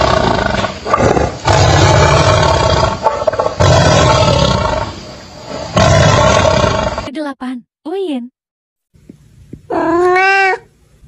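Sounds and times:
tiger roaring: 0:00.0 - 0:07.1.

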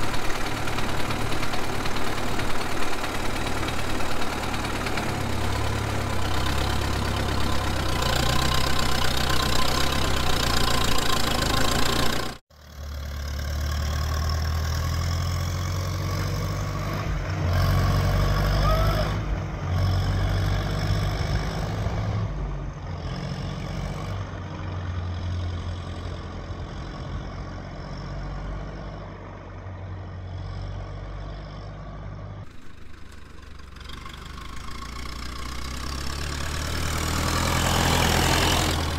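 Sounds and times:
tractor engine running: 0:00.0 - 0:38.9.

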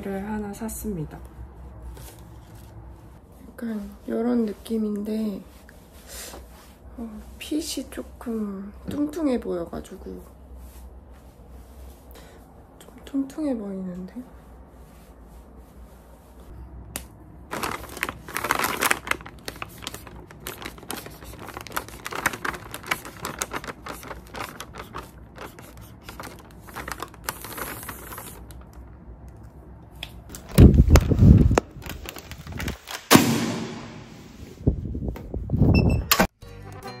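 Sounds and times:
plastic crinkling: 0:17.5 - 0:29.0, 0:30.3 - 0:33.2
marker pen scratching on plastic: 0:20.5 - 0:26.6.

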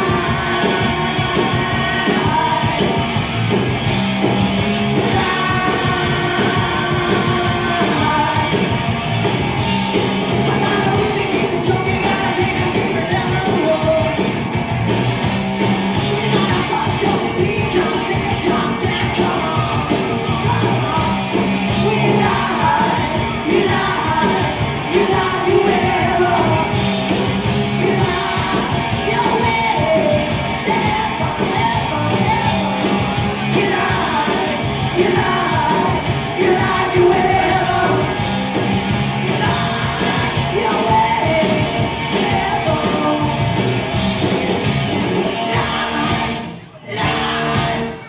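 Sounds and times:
hard rock band playing live: 0:00.0 - 0:48.0
singer yelling: 0:16.0 - 0:38.3, 0:45.2 - 0:48.0.

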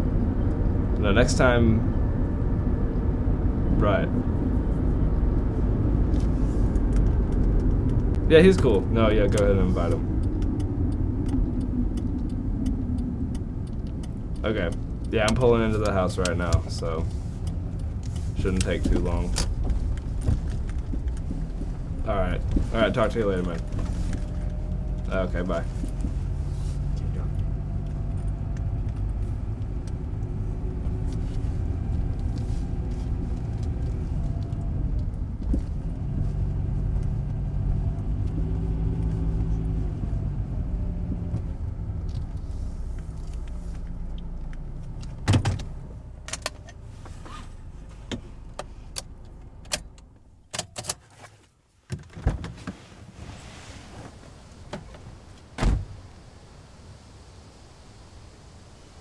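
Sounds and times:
car engine running: 0:00.0 - 0:49.7
sharp clicks and knocks: 0:06.1 - 0:22.7
loud thump: 0:55.6 - 0:56.0.

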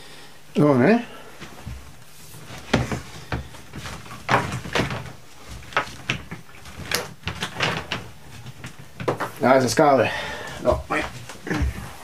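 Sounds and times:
objects knocking and clicking: 0:02.7 - 0:09.4.

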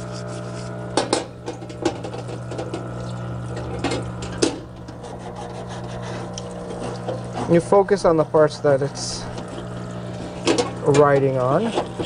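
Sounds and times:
pump humming: 0:00.0 - 0:12.0
scouring pad scrubbing metal: 0:04.8 - 0:12.0.

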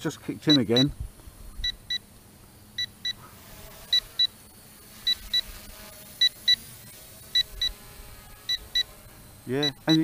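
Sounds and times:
high electronic double beeps: 0:00.5 - 0:02.0, 0:08.5 - 0:10.0.

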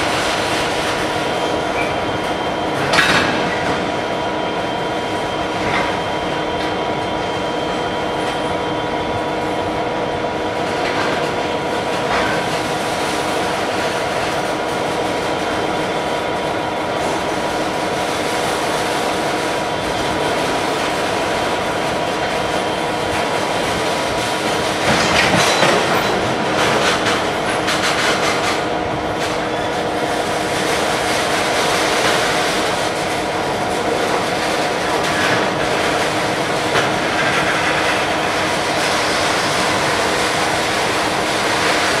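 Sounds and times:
freight train rolling rumble: 0:00.0 - 0:42.0
wheels clattering over rail joints: 0:23.1 - 0:29.5.

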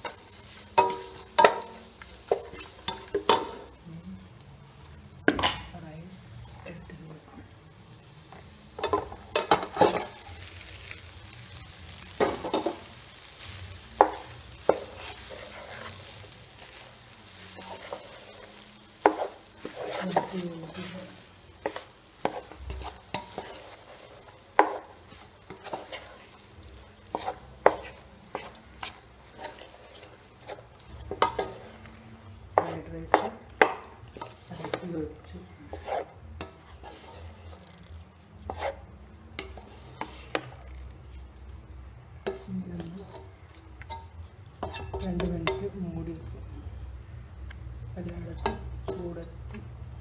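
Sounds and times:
spatula scraping a pan: 0:00.0 - 0:03.7, 0:08.8 - 0:32.0, 0:32.6 - 0:41.2, 0:42.2 - 0:45.7
faint sizzle: 0:00.0 - 0:50.0.

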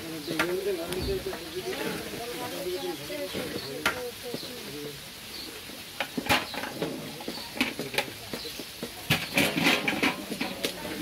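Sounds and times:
metal spoon scraping a bucket: 0:09.1 - 0:11.0.

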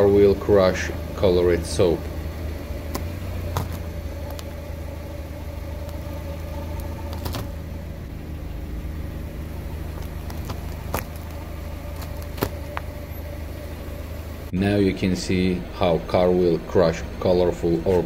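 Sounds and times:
car engine humming: 0:00.0 - 0:18.0
soap bars cracking: 0:02.9 - 0:04.6, 0:05.8 - 0:07.6, 0:09.9 - 0:12.9.

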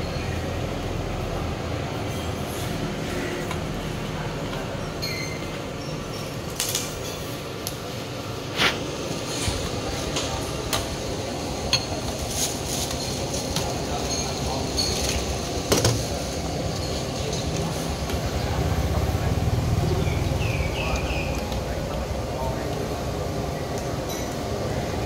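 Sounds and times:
dishes and utensils clinking: 0:05.0 - 0:05.5, 0:11.7 - 0:17.8, 0:24.0 - 0:24.5.

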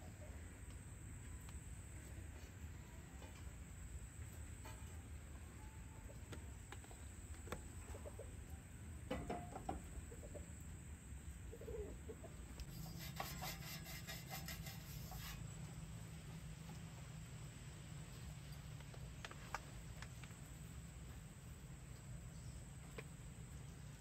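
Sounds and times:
chickens clucking: 0:05.6 - 0:10.8, 0:11.5 - 0:15.4.

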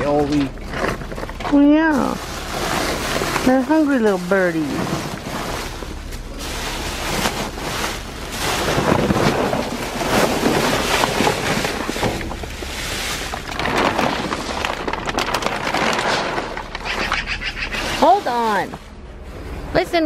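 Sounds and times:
plastic bags rustling: 0:00.0 - 0:19.0.

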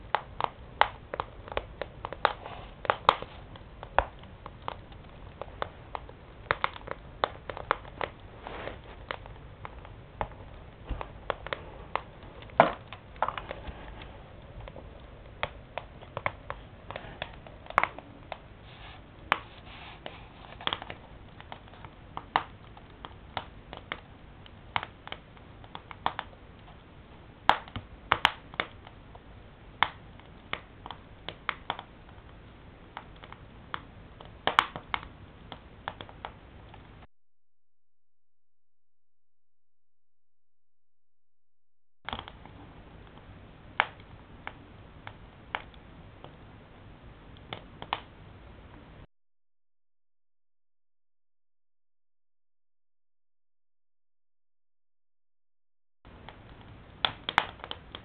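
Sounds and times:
firewood crackling and popping: 0:00.0 - 0:37.1, 0:42.1 - 0:48.8, 0:56.1 - 0:58.0
low steady fire hiss: 0:00.0 - 0:37.1, 0:42.1 - 0:49.1, 0:56.1 - 0:58.0.

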